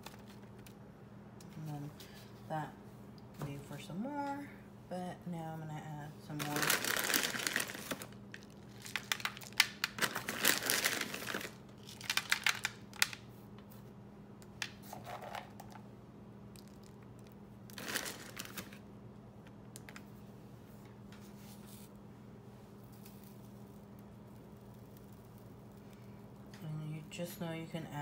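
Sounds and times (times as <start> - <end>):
faint steady hum: 0.0 - 28.0
plastic packaging crinkling: 6.4 - 13.3, 17.7 - 18.8.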